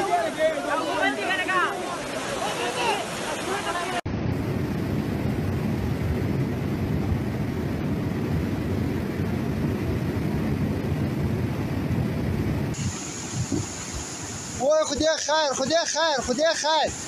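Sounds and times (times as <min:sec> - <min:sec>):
floodwater rushing: 0:00.0 - 0:04.1, 0:12.7 - 0:17.0.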